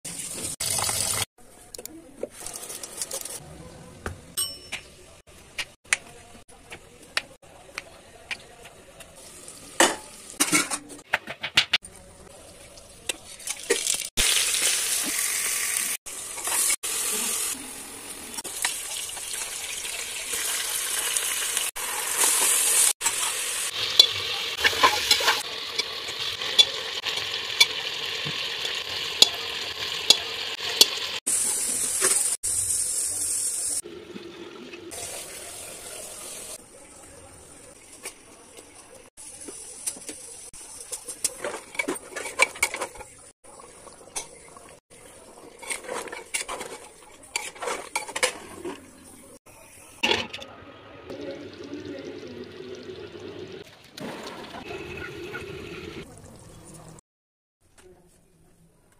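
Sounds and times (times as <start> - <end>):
meat sizzling in hot oil: 13.7 - 33.8.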